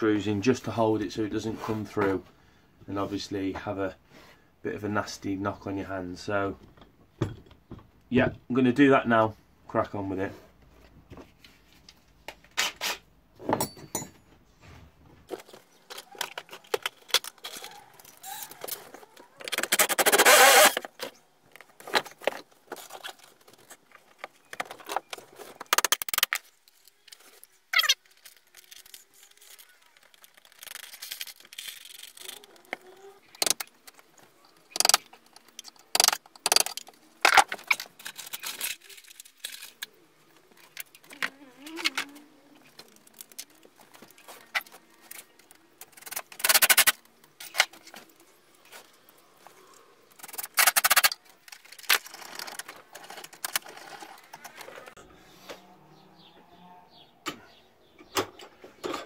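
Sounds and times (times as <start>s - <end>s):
hand tools clicking and rattling: 15.4s - 49.0s, 50.1s - 55.0s.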